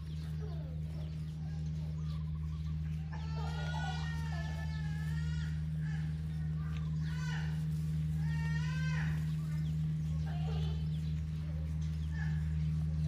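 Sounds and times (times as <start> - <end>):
steady low hum: 0.0 - 13.0
rooster crowing: 3.0 - 6.1.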